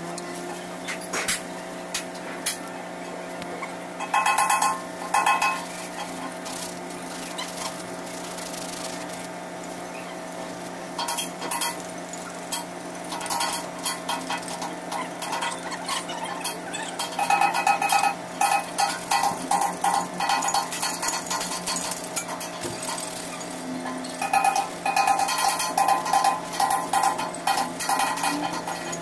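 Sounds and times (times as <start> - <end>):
steady hum: 0.0 - 29.0
metal tools clinking and scraping: 4.0 - 6.6, 11.0 - 29.0.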